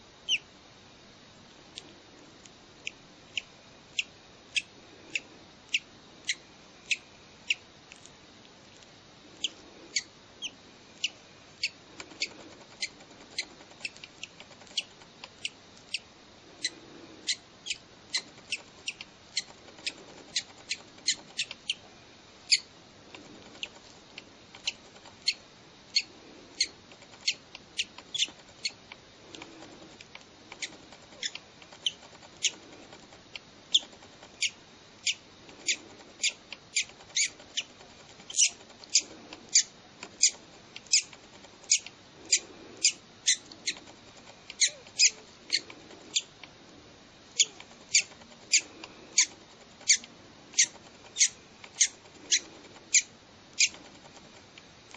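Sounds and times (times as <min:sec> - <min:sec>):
bird chick cheeping: 0:00.2 - 0:00.5, 0:09.4 - 0:16.0.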